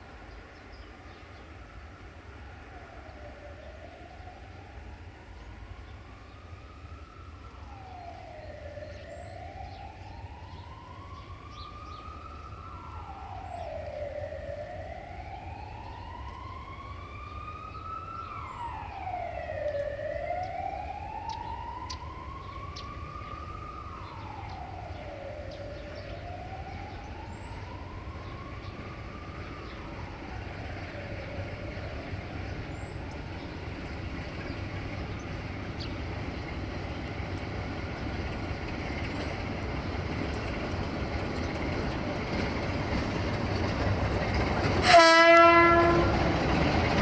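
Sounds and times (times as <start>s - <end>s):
wailing siren: 2.2s - 47.0s.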